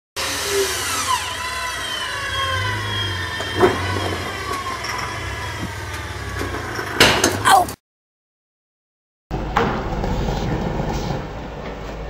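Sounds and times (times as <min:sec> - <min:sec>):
engine running: 0:00.2 - 0:07.5
winch whining under load: 0:00.2 - 0:07.8.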